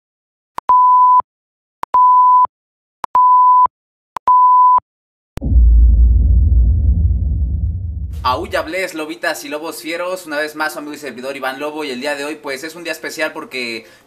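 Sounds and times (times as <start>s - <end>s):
deep low rumble: 5.4s - 8.8s.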